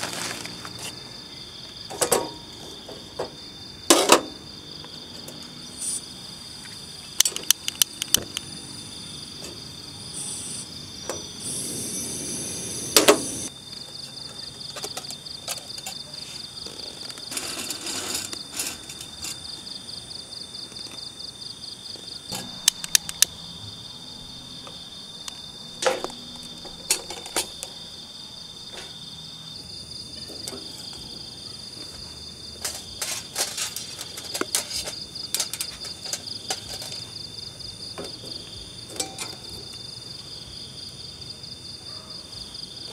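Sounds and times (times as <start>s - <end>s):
crickets chirping: 0.0s - 42.9s
short hiss: 11.4s - 13.5s.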